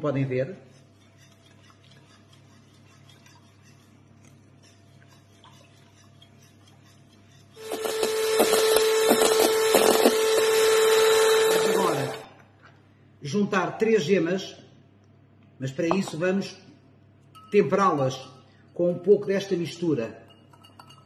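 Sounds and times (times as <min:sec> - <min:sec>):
spoon scraping glass bowl: 0:00.6 - 0:12.2
electric hand mixer whining: 0:07.6 - 0:12.3.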